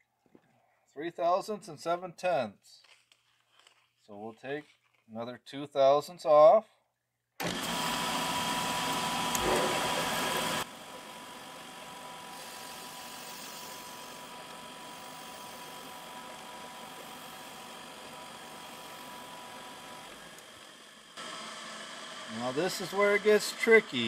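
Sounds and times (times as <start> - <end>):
grinder grinding steel: 7.4 - 24.0.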